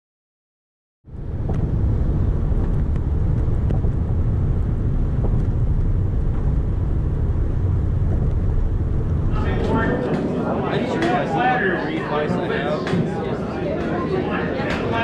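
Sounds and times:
car road rumble inside cabin: 1.1s - 9.9s.

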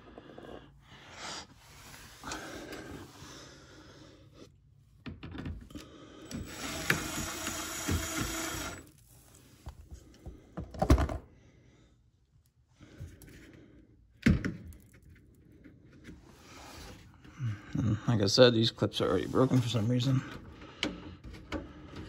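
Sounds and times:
small electric motor running: 6.4s - 8.9s.

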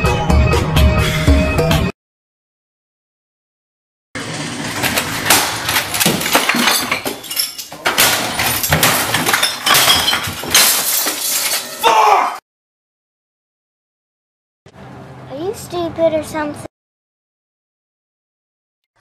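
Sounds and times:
things crashing and breaking: 4.2s - 12.0s.

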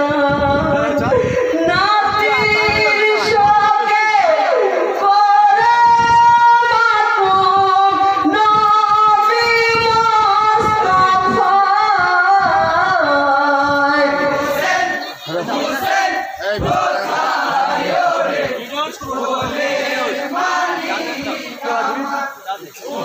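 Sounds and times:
man singing a lament: 0.0s - 14.6s.

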